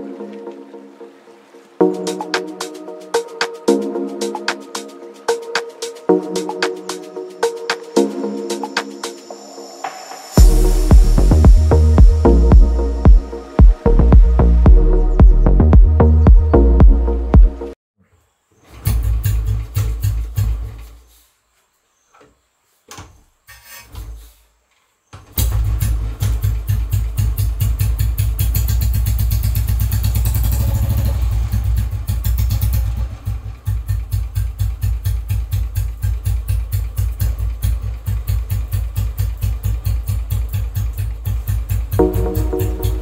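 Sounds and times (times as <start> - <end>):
music: 0.0 - 17.8, 42.0 - 43.0
motorcycle engine idling: 10.4 - 17.0, 18.8 - 20.9, 25.4 - 43.0.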